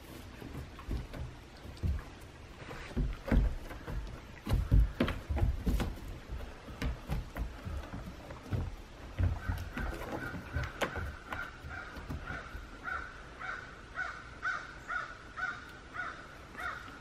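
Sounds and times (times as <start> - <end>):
paws thudding on plywood roof: 0.0 - 13.0.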